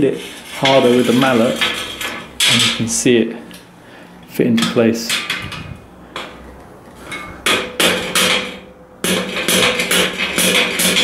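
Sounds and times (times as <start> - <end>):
rubber mallet striking steel beam: 7.4 - 11.0.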